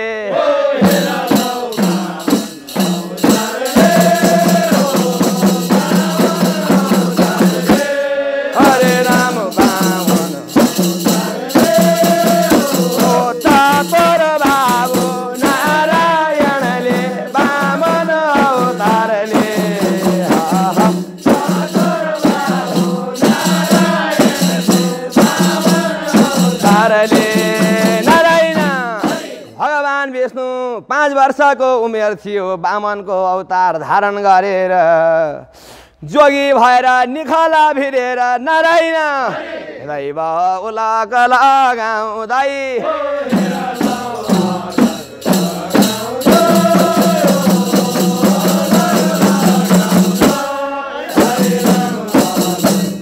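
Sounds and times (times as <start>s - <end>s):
group voices singing: 0.0s - 29.6s, 39.1s - 40.0s, 42.7s - 53.0s
frame drums with jingles: 0.7s - 29.6s, 43.2s - 53.0s.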